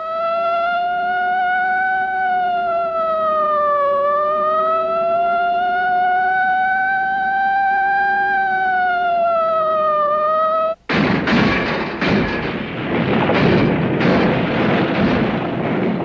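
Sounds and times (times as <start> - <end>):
wavering electronic tone: 0.0 - 10.8
crashing rumble with impacts: 10.9 - 16.0.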